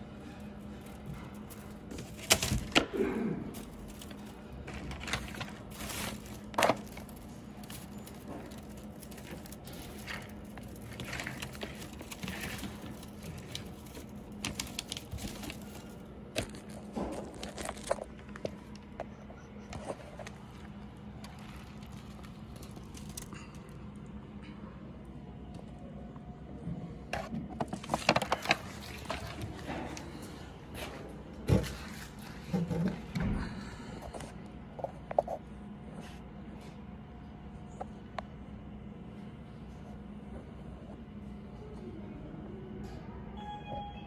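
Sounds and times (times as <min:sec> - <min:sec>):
wire rustling and clicking: 0:00.0 - 0:24.1.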